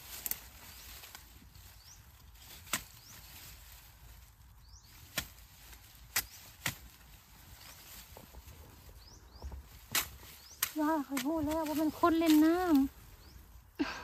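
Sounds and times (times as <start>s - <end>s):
digging tool chopping into soil: 2.5s - 3.3s, 5.0s - 7.1s, 9.7s - 12.6s.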